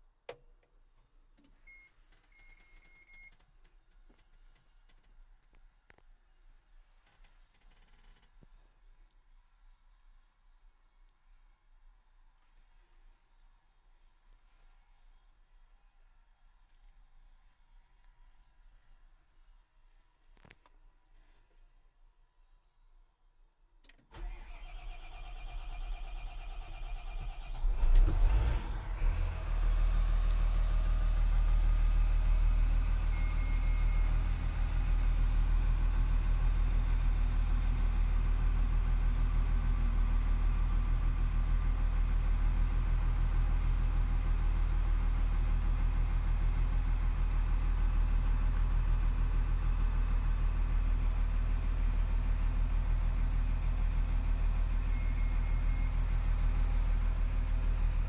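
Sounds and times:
diesel engine starting and idling: 24.1 - 58.0
short beep: 33.1 - 34.2.

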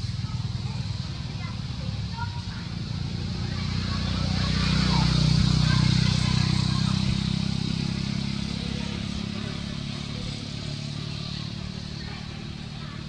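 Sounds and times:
vehicle engine passing by: 0.0 - 13.0.

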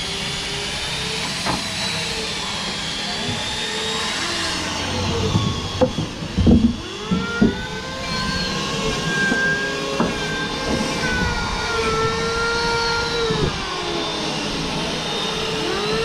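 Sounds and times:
motor whining: 0.0 - 16.0
sharp knocks: 5.2 - 7.6.

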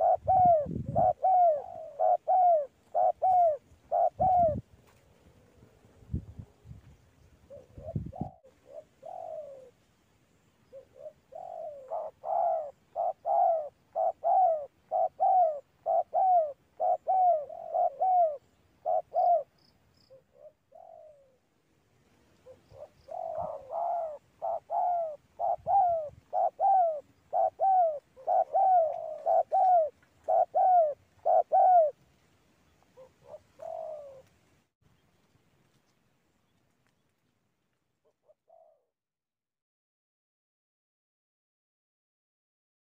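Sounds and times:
dove cooing: 0.0 - 5.7, 7.4 - 21.5, 22.2 - 32.1, 32.7 - 34.4, 38.0 - 38.9.

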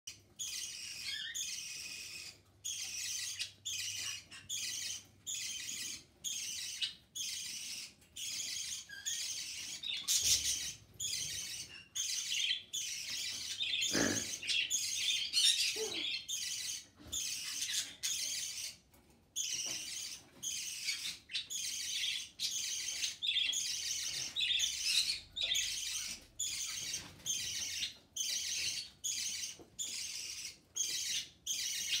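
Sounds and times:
budgerigar chirping: 0.1 - 18.8, 19.4 - 32.0.

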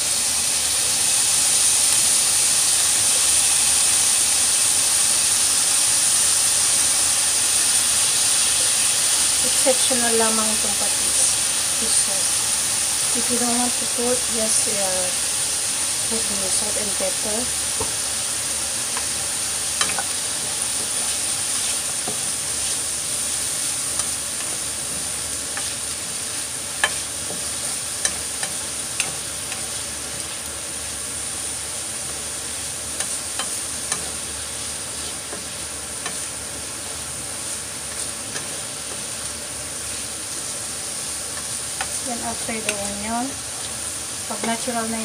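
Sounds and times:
meat and onion sizzling in pan: 0.0 - 45.0
spatula clicking against pan: 19.8 - 20.1, 28.0 - 29.6, 33.0 - 34.1.

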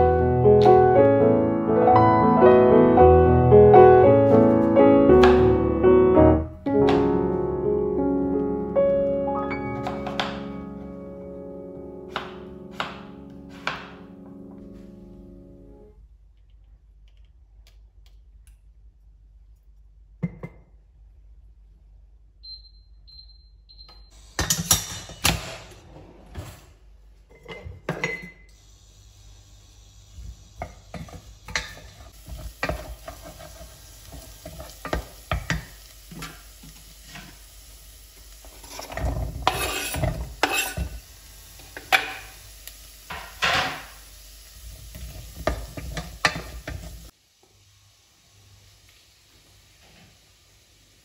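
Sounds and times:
onion sizzling in a saucepan: 0.0 - 15.7, 28.0 - 51.0
wooden spoon scraping a pan: 30.9 - 35.0, 38.5 - 41.0.

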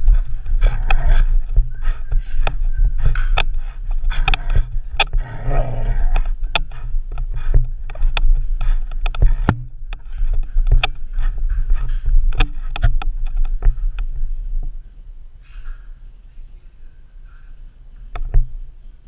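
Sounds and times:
low rumble: 0.0 - 15.4
sharp knocks and clicks: 0.1 - 14.1.

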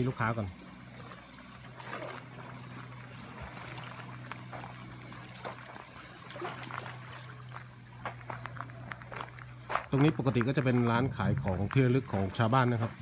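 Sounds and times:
small splashes: 0.0 - 9.4
boat engine humming: 0.0 - 13.0
water sloshing and lapping: 0.0 - 13.0.

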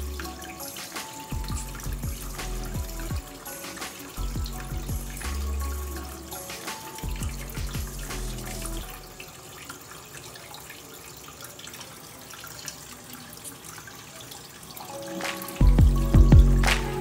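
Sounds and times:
background music: 0.0 - 10.4, 14.7 - 17.0
water trickling into aquarium: 0.0 - 16.5.

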